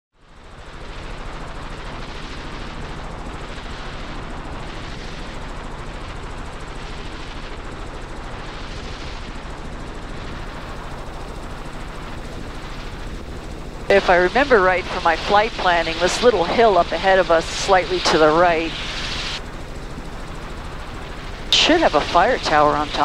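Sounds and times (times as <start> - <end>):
helicopter rotor beat from cabin: 0.2 - 23.0.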